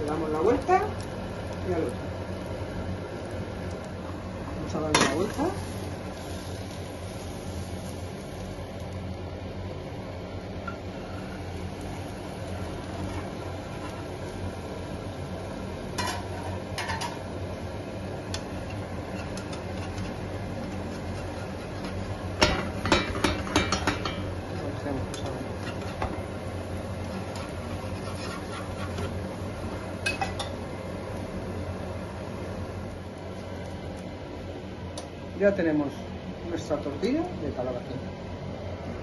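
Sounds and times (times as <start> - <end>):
steady low hum: 0.0 - 39.0
spatula scraping a frying pan: 18.6 - 22.2, 25.5 - 26.2, 27.1 - 29.3.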